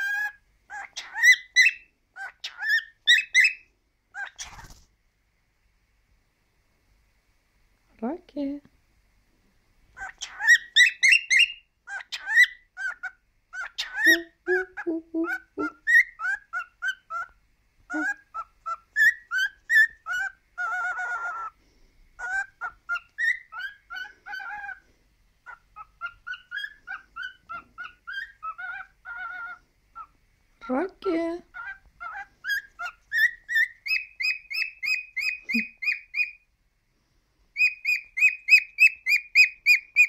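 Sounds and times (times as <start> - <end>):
cockatiel chirping and whistling: 0.0 - 4.8, 10.0 - 17.3, 17.9 - 21.5, 22.2 - 24.8, 25.4 - 30.1, 31.6 - 36.4, 37.6 - 40.0.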